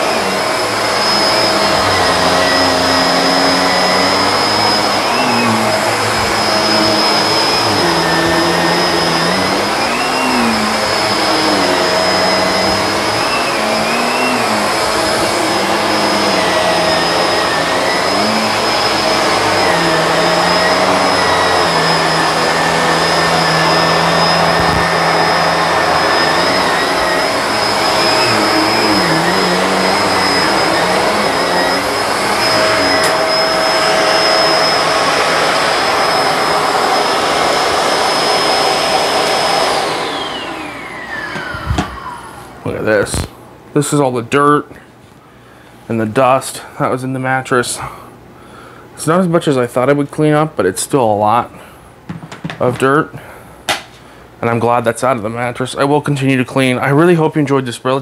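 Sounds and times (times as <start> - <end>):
vacuum cleaner running: 0.0 - 43.9.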